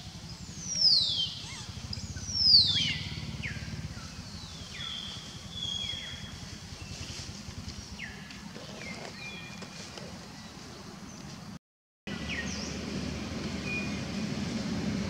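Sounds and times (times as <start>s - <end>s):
high-pitched animal calls: 0.9s - 3.4s.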